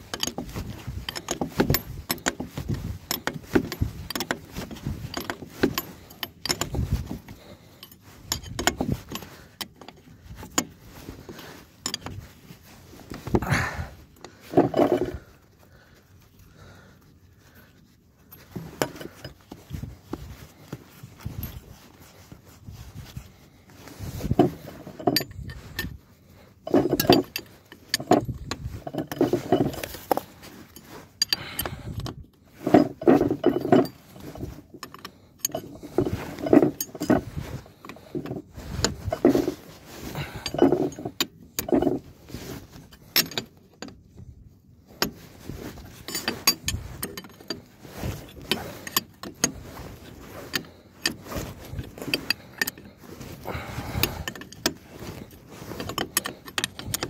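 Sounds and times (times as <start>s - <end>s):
metal tools clinking: 0.0s - 15.4s, 18.2s - 22.0s, 23.9s - 44.2s, 44.9s - 57.0s.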